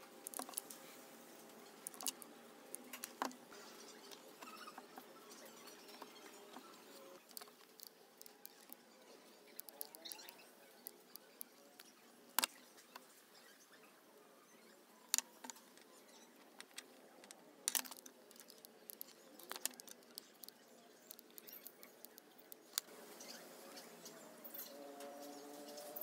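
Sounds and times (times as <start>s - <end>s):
hands handling metal part clicks: 0.2s - 0.7s, 1.8s - 3.4s, 7.2s - 8.8s, 9.5s - 11.5s, 16.4s - 22.9s.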